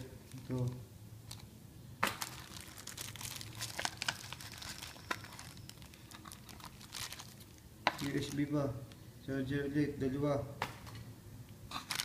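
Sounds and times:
plastic wrapping crinkling: 0.0s - 8.6s, 11.7s - 12.0s.

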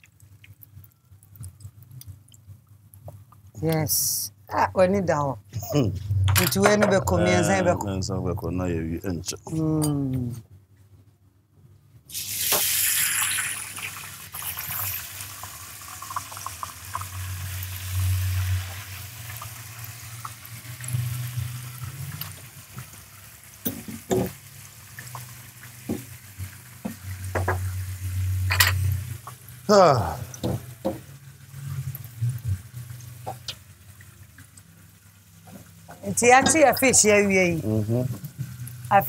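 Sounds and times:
frying sizzle: 0.0s - 4.3s, 12.1s - 39.0s
hiss: 12.1s - 15.1s.

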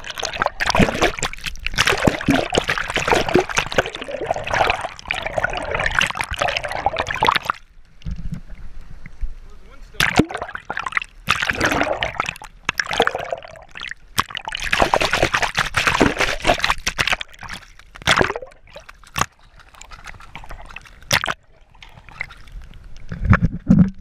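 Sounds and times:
seawater sloshing and gurgling: 0.0s - 8.5s, 9.9s - 24.0s
camera splashing into water: 10.0s - 21.4s.

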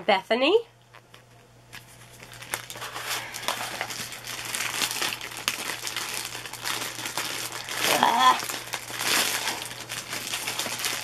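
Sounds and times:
plastic sleeve crinkling: 0.9s - 11.0s.

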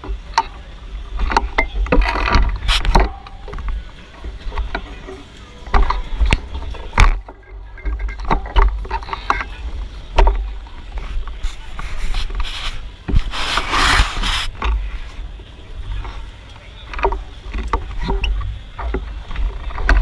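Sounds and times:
bike rattling clicks and knocks: 0.0s - 20.0s
rush of hiss: 11.9s - 14.6s.

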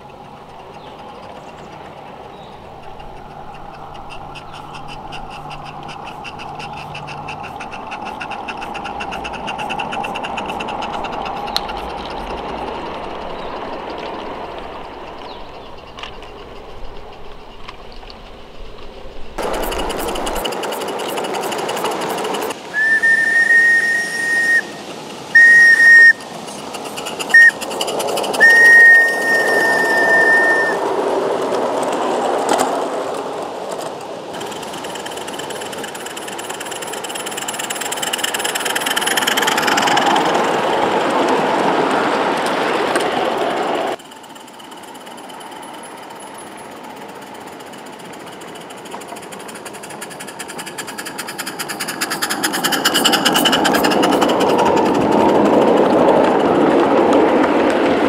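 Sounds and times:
model train wheels rattling: 0.0s - 58.0s
steam whistle blowing: 22.7s - 26.3s, 27.3s - 27.6s, 28.4s - 30.8s.

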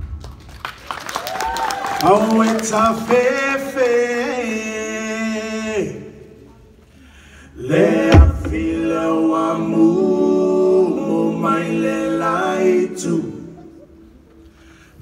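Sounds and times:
men singing in harmony: 7.6s - 13.6s
sharp low knock: 8.1s - 8.8s.

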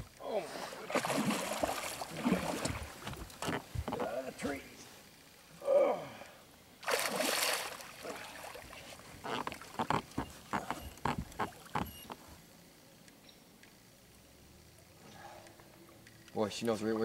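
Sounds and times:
fish splashing at water surface: 0.8s - 2.9s, 6.8s - 8.9s.

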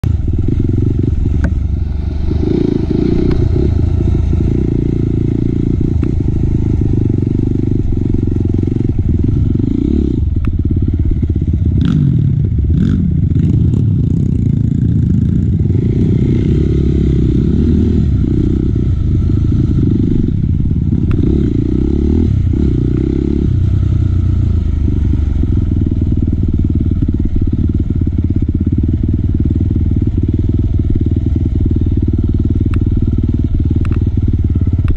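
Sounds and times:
dirt bike engine revving: 0.1s - 10.3s, 11.2s - 23.6s.

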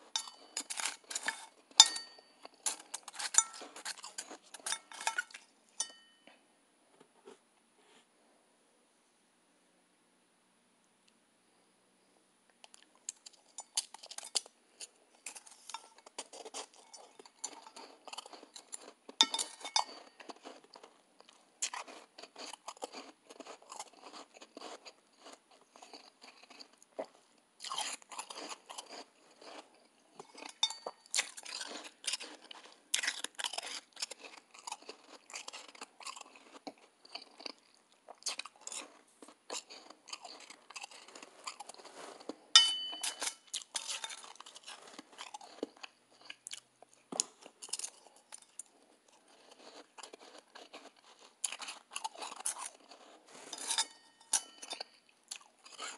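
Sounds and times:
person crunching ice: 16.1s - 21.0s, 21.6s - 26.8s, 27.6s - 37.6s, 38.2s - 42.4s, 47.2s - 53.8s.

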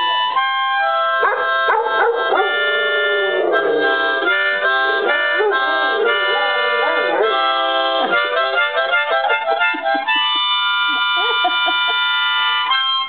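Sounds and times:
harmonica playing chords: 0.0s - 13.0s
dog howling: 1.2s - 8.2s.

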